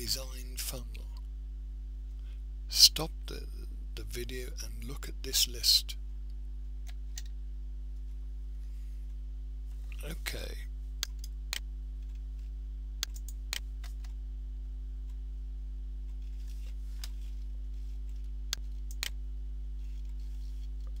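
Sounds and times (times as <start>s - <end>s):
low electrical hum: 0.0s - 21.0s
computer mouse clicks: 13.0s - 14.2s, 18.5s - 19.2s.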